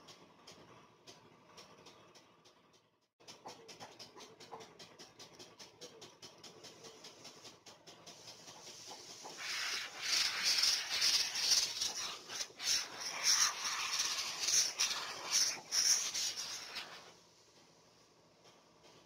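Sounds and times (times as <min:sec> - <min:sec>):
spray gun hissing: 0:08.6 - 0:17.4.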